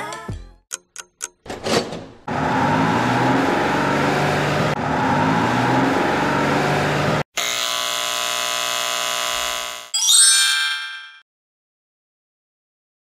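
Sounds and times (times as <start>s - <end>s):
electric hair clipper buzzing: 7.3s - 10.0s.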